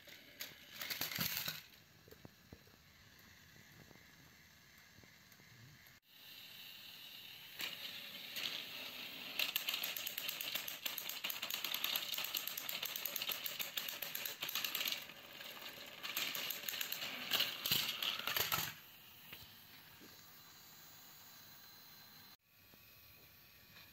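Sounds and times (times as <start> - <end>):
toy train clicking rattle: 0.0 - 1.8, 6.3 - 18.8.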